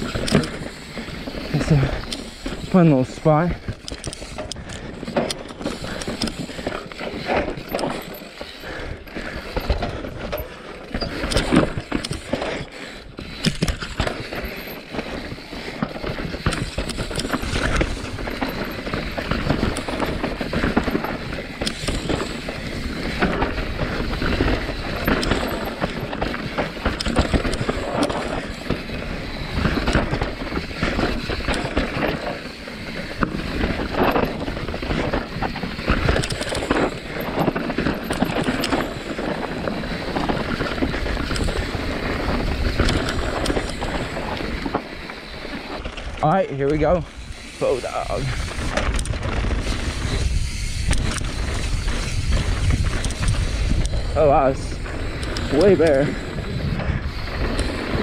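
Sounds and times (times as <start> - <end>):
bike chain and frame rattle: 0.0 - 58.0
bike tyres clattering over rocks: 0.0 - 58.0
wind rumble on microphone: 45.7 - 58.0.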